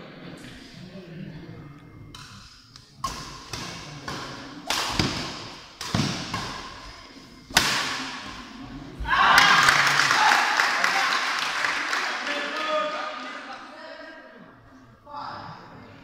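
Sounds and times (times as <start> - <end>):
rackets striking shuttlecock: 2.2 - 6.8, 7.5 - 8.4
spectators cheering and shouting: 9.0 - 11.1.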